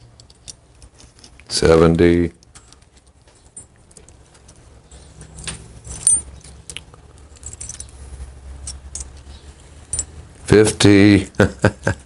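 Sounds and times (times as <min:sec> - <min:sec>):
metal shims clinking: 0:02.6 - 0:10.3.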